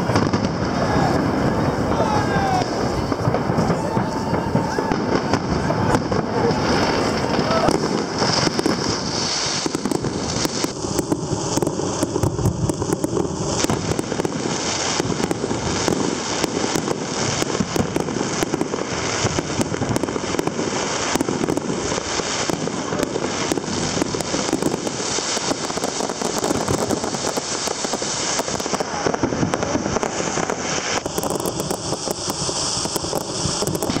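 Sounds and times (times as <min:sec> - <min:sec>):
fireworks crackling and popping: 0:00.0 - 0:34.0.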